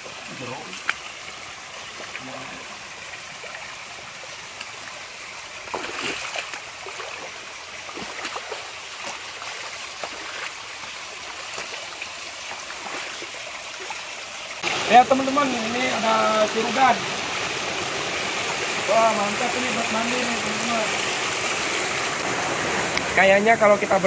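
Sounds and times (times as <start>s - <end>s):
stream running over rocks: 0.0s - 24.0s
footsteps wading through water: 5.6s - 14.0s.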